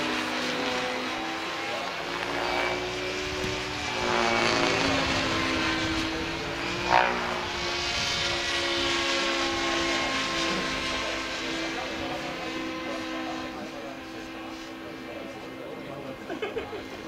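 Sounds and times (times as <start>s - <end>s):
model helicopter motor whine: 0.0s - 17.0s.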